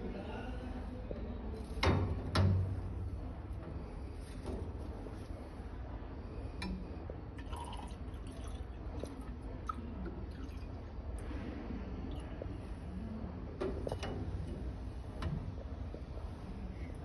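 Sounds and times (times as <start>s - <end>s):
steady low hum: 0.0s - 17.0s
liquid pouring and dripping: 6.6s - 12.9s.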